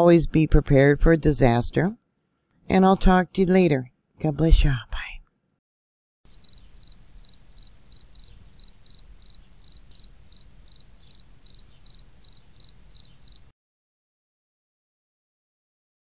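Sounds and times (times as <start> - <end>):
cricket chirping: 6.3 - 13.5.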